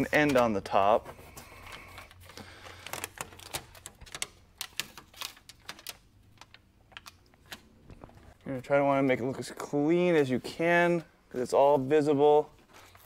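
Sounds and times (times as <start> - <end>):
foil tape crinkling: 1.7 - 8.3.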